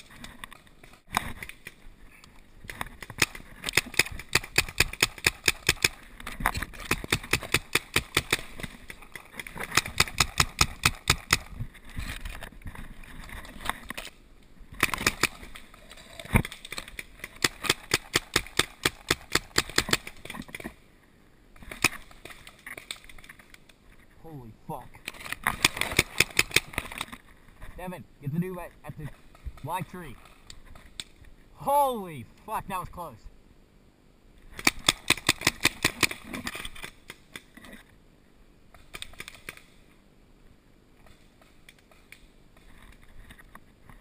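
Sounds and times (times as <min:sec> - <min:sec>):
paintball markers firing: 0:03.1 - 0:06.0.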